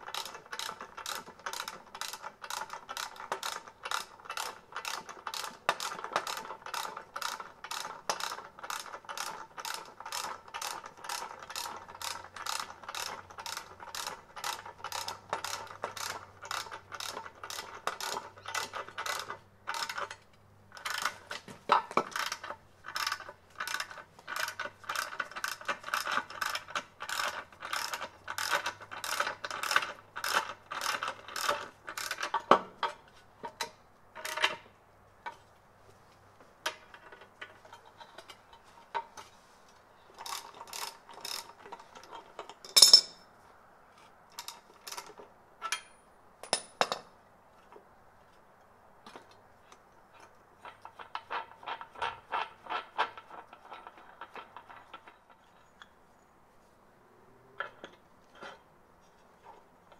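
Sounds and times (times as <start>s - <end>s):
ratchet wrench clicking: 0.0s - 20.2s, 22.0s - 32.5s, 40.2s - 41.6s.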